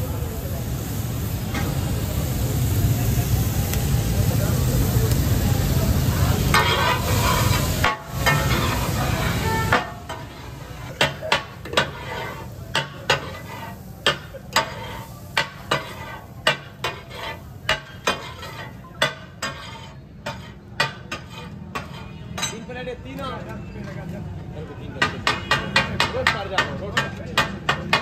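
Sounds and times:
fish sizzling on griddle: 0.0 - 22.2
metal spatulas clacking on griddle: 6.5 - 22.7, 25.0 - 28.0.

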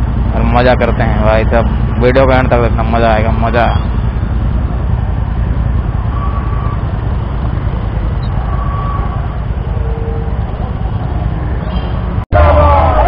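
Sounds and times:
motorcycle engines rumbling: 0.0 - 13.0.

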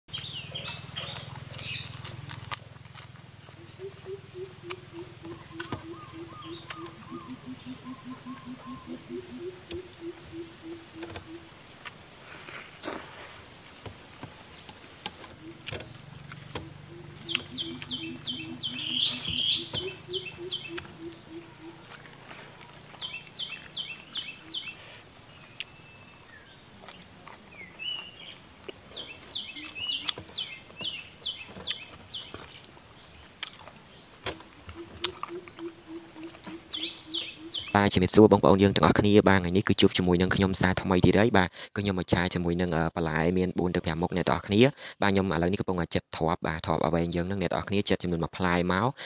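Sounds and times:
rapid repeated bird notes: 0.1 - 2.6, 3.3 - 12.2, 13.8 - 38.6
high insect trill: 0.2 - 41.3
low pulsing animal call: 3.4 - 11.6, 15.3 - 38.0.

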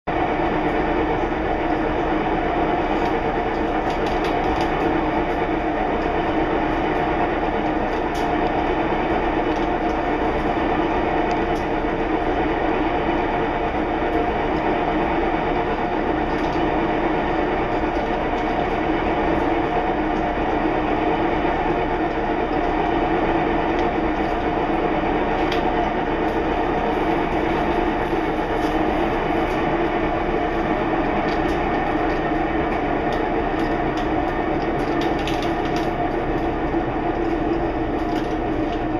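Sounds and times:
appliance rumble and hum: 0.0 - 38.9.

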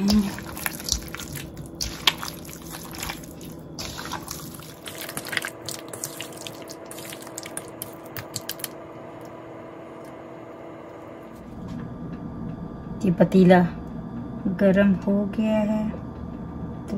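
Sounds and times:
hand kneading chicken in yogurt: 0.0 - 8.7.

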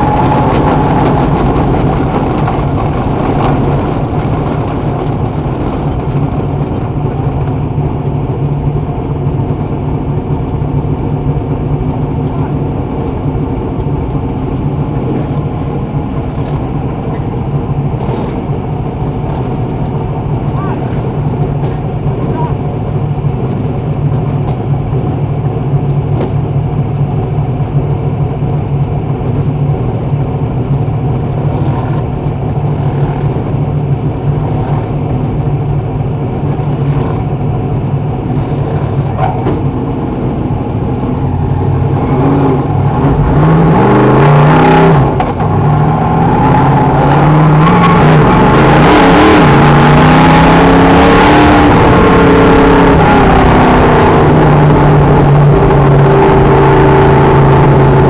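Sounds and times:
race car engine revving: 0.0 - 7.7, 36.3 - 58.0.

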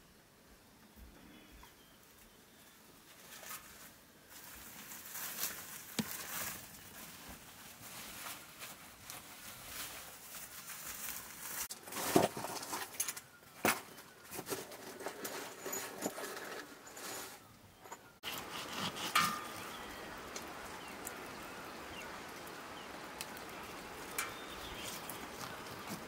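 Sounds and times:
wood fire crackling: 16.4 - 26.0.

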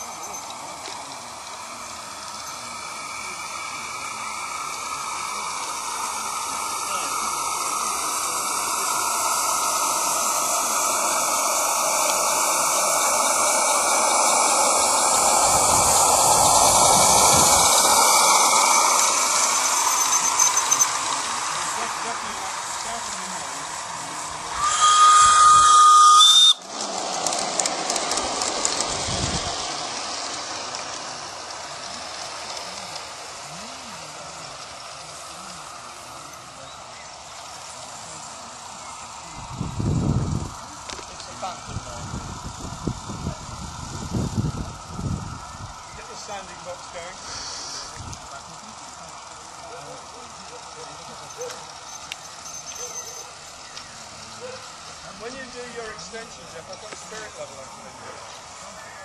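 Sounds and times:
steam locomotive hissing: 0.0 - 59.0
train clicking along track: 0.0 - 59.0
model train whistle: 24.5 - 26.6.

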